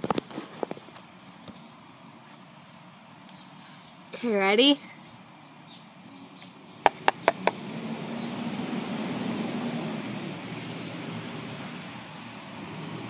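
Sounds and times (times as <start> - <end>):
garbage truck engine rumbling: 6.8 - 13.0
spoon tapping plastic cup: 6.9 - 7.6.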